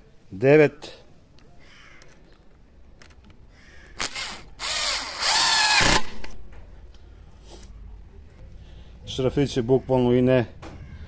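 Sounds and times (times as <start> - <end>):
impact driver driving screw into wood: 4.0 - 6.4.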